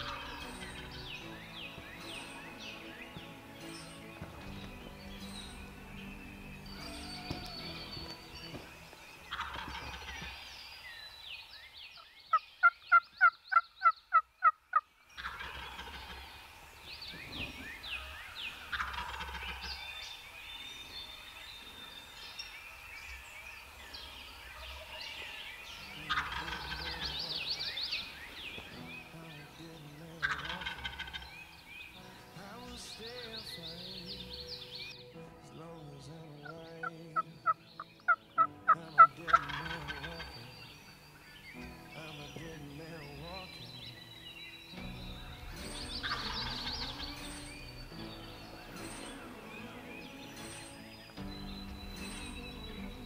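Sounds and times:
turkey gobbling: 0.0 - 1.1, 9.3 - 10.6, 12.6 - 16.4, 17.2 - 19.9, 25.8 - 28.7, 30.2 - 31.4, 36.4 - 40.3, 45.7 - 47.2
turkey yelps: 6.8 - 7.7, 9.3 - 10.4, 17.4 - 19.7, 26.1 - 26.8, 30.2 - 31.2.

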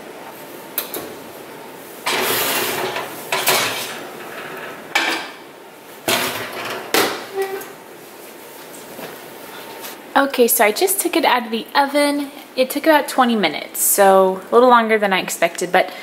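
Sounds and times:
metal oven rack scraping: 2.0 - 7.8.

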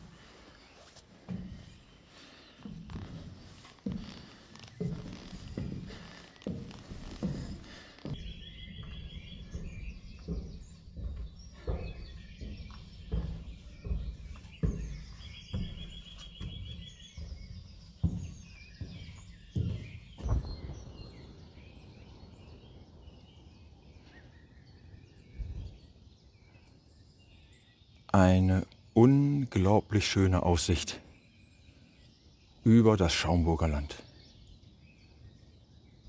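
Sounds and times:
walking footsteps: 0.0 - 23.2
birds chirping: 0.0 - 36.0.

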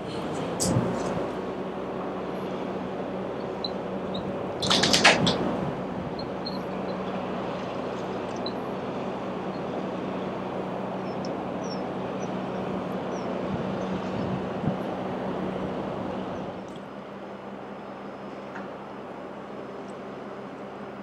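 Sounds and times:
diesel engine droning: 0.0 - 21.0.

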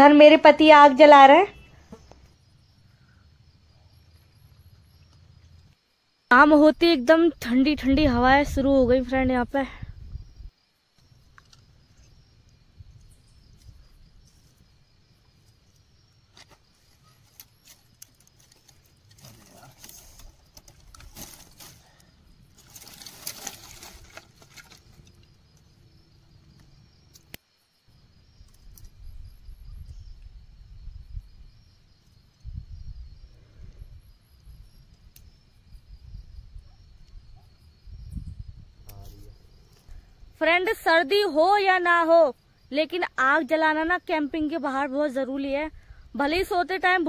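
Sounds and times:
campfire crackling: 1.6 - 9.1, 10.0 - 40.8
wind rumble on microphone: 6.6 - 10.6, 28.0 - 40.4
dry twigs snapping: 17.2 - 25.3.

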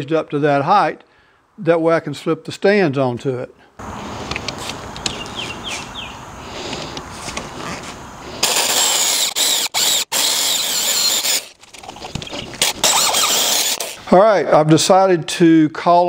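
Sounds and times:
electric drill boring into wood: 8.4 - 11.6, 12.6 - 14.0.

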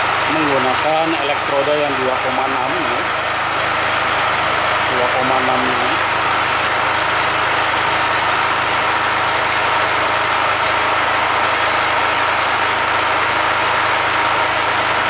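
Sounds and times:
generator engine humming: 0.0 - 15.0.

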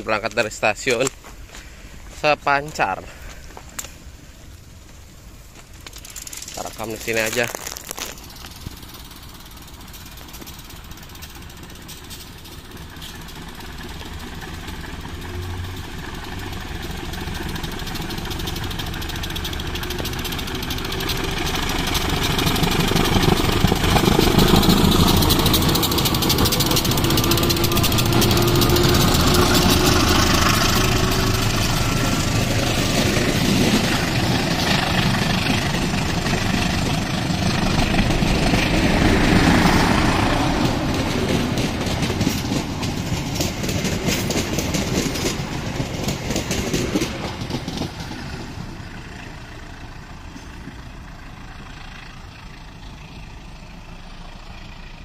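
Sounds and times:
carriage wheels clattering: 5.6 - 48.1
diesel locomotive engine running hard: 6.6 - 55.0.

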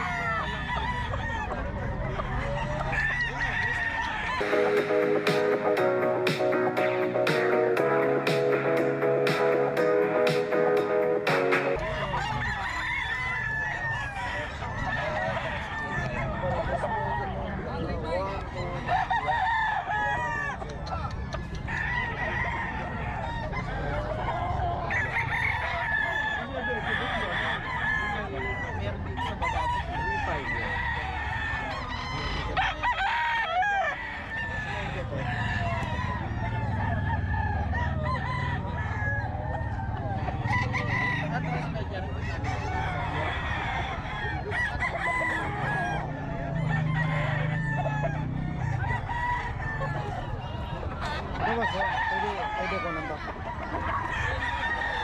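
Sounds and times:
chickens clucking: 0.0 - 32.8, 33.7 - 55.0
roosters crowing: 0.0 - 55.0.

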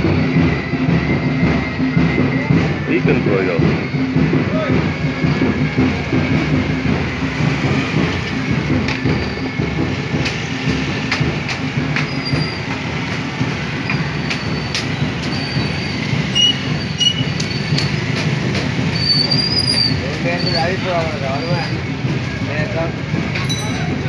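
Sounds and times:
motorcycle engines rumbling: 0.0 - 24.0.

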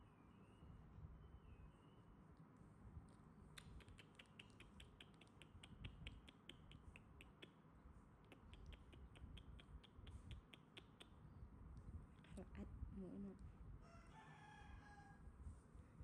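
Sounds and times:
faint rapid clicking: 3.5 - 7.6.

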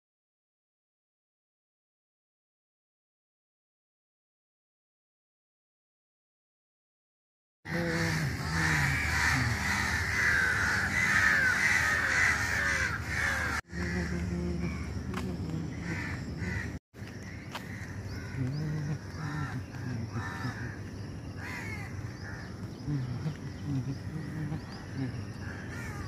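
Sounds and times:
chorus of birds calling: 7.7 - 26.0.

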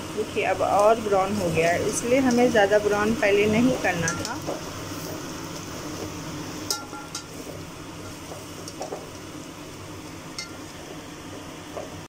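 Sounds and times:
onions sizzling in oil: 0.0 - 12.0
metal skimmer clinking on pot: 4.0 - 4.4, 6.7 - 7.3, 10.4 - 10.6.

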